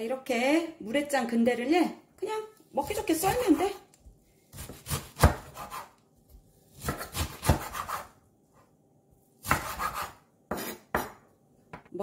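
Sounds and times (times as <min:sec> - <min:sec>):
knife slicing leaves on cutting board: 0:04.5 - 0:06.0, 0:06.7 - 0:08.2, 0:09.4 - 0:11.2.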